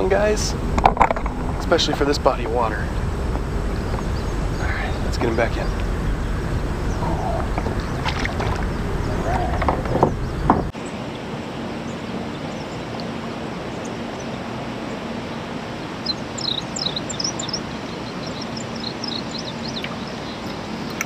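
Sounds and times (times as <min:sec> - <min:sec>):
small bird chirping: 0:03.7 - 0:10.7, 0:16.0 - 0:21.0.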